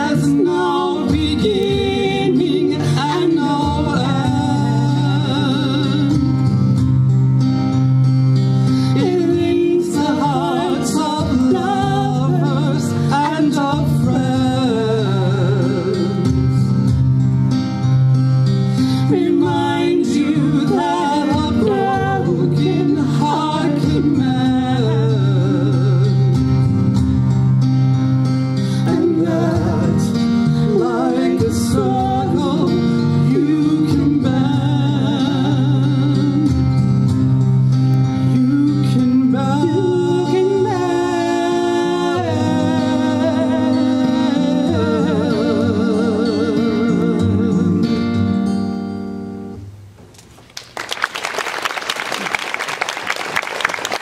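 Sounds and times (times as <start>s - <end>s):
man singing: 0.0s - 6.5s, 9.0s - 16.4s, 19.0s - 26.4s, 28.8s - 36.7s, 38.2s - 48.3s
woman singing: 0.0s - 6.5s, 8.9s - 16.5s, 18.9s - 26.4s, 28.8s - 36.8s, 38.1s - 48.3s
band with acoustic guitar: 0.0s - 50.8s.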